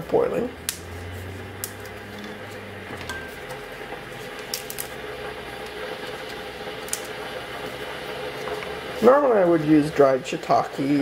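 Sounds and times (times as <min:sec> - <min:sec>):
steady hum: 0:00.0 - 0:11.0
mushroom stems snapping: 0:00.6 - 0:00.9.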